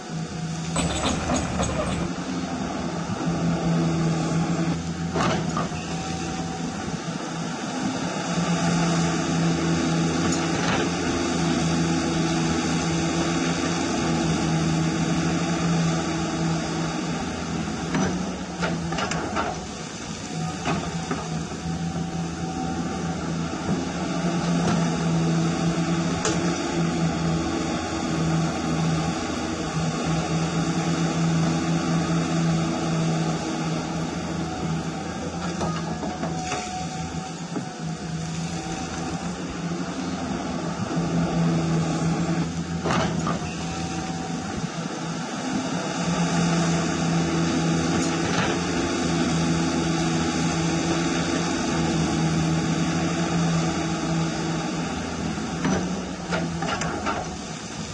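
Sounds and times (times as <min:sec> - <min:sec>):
hydraulic pump whining: 0:00.6 - 0:02.2.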